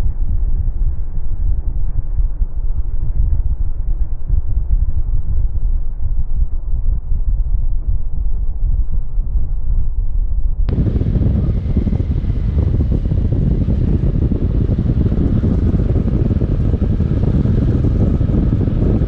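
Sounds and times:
wind buffeting microphone: 0.0 - 19.0
motorcycle engine running: 10.7 - 19.0.

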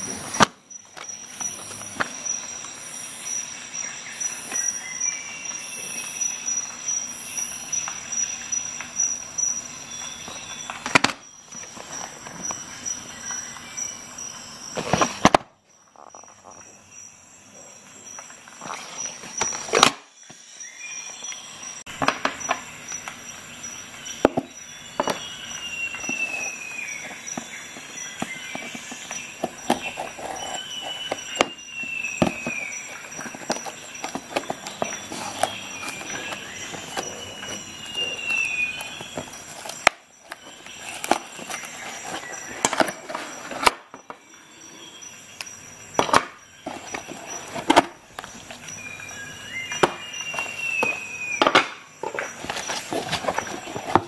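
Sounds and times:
knife scraping through cardboard: 25.7 - 43.7, 52.3 - 54.0
clicks and knocks of handling: 32.2 - 44.2, 49.7 - 54.0.

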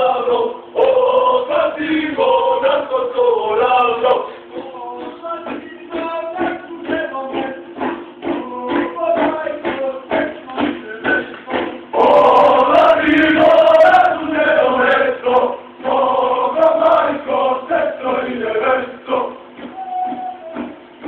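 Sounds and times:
male choir chanting: 0.0 - 6.2, 12.0 - 19.4.

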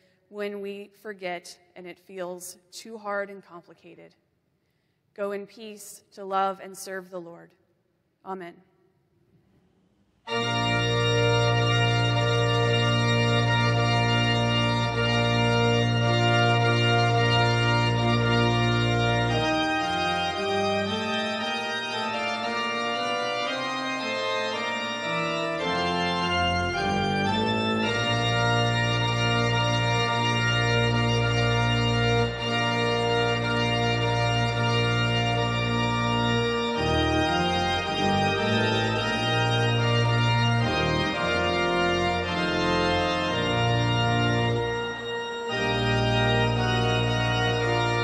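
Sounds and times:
church organ playing: 10.2 - 48.0.

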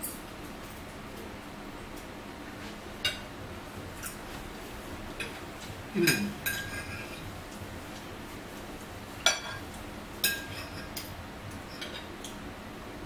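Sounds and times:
cutlery clinking on plate: 6.0 - 7.2, 9.2 - 11.1, 11.7 - 12.4.

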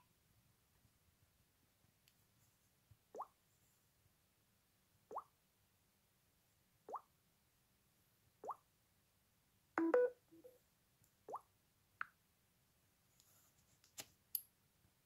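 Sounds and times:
phone chime: 9.8 - 10.2.

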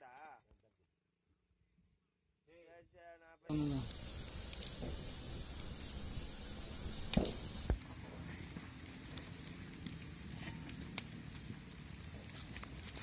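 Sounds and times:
steam hissing: 3.5 - 7.8.

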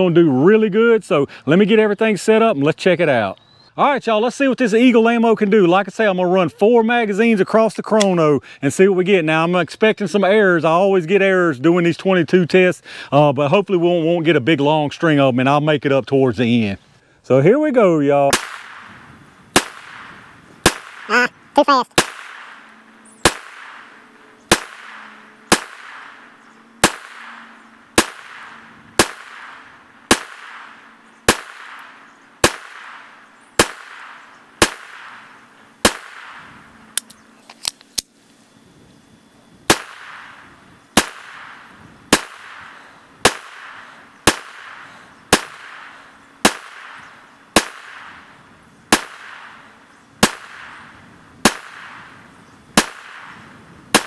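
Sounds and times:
pistol shots with echo: 18.3 - 19.0, 22.0 - 36.6, 39.7 - 40.4, 41.0 - 52.2, 52.8 - 54.0.

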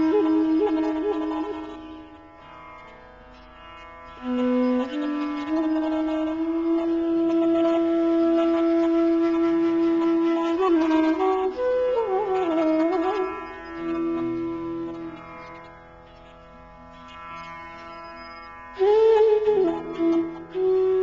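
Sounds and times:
wind instrument melody: 0.0 - 2.1, 4.2 - 15.6, 18.8 - 21.0.

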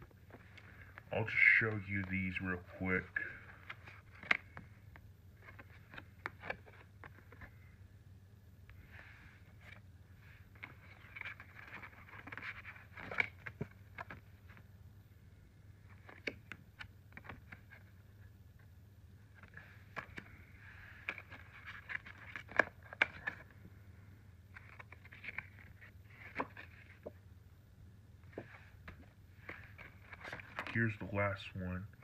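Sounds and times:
card stock rustling and scraping: 5.4 - 7.6, 8.8 - 14.6, 19.3 - 23.6, 24.5 - 27.2, 28.2 - 31.0.

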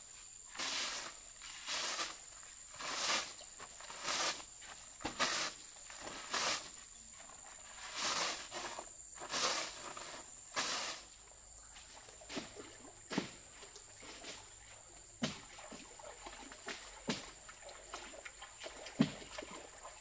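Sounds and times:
swishing rustle: 0.5 - 4.4, 5.1 - 6.8, 7.7 - 11.1.

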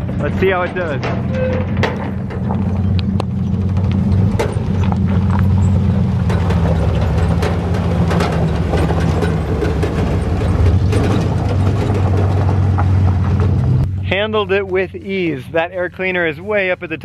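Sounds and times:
gravel crunching under tyres: 0.0 - 17.0
pickup engine droning: 0.0 - 17.0.

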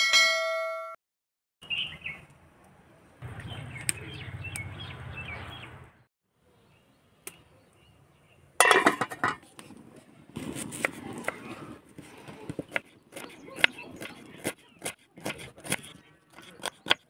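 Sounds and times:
small birds chirping: 1.6 - 2.3, 3.2 - 8.6, 11.2 - 17.0.

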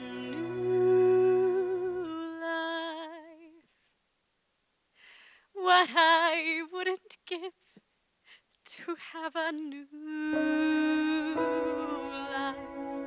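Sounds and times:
soft musical accompaniment: 0.0 - 2.4, 10.2 - 13.0
woman singing with vibrato: 0.0 - 3.6, 5.6 - 7.6, 8.7 - 13.0.

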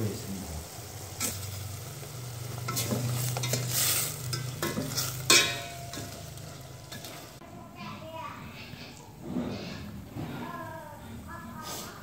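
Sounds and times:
food sizzling in oil: 0.0 - 7.4
spoon stirring and scraping pot: 2.6 - 7.4.

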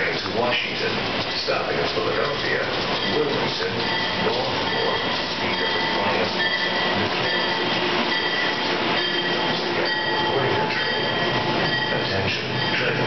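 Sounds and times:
train wheels rushing on rail: 0.0 - 13.0
thin high-pitched tones: 3.0 - 13.0.

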